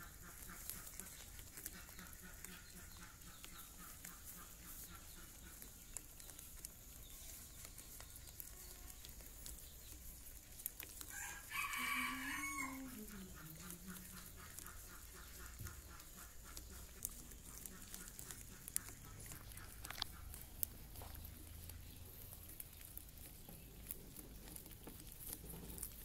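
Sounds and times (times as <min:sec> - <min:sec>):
rabbits nibbling corn cob: 0:00.0 - 0:26.0.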